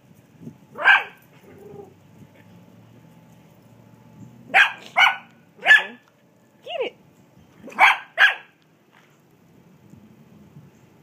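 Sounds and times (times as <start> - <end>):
dog barking: 0.8 - 1.2, 4.5 - 6.0, 7.7 - 8.6.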